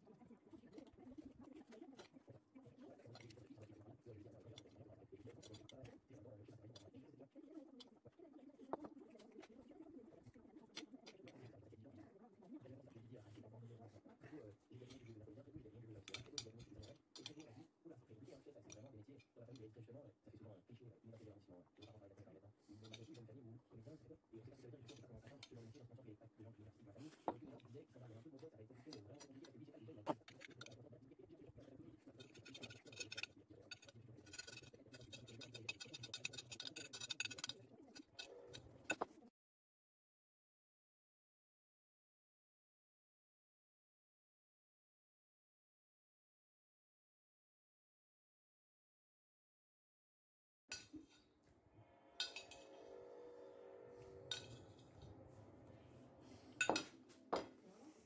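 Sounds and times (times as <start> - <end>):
metal spoon scraping a plate: 32.1 - 39.1, 52.2 - 55.3
fork clinking on plate: 52.2 - 52.9, 56.6 - 56.9.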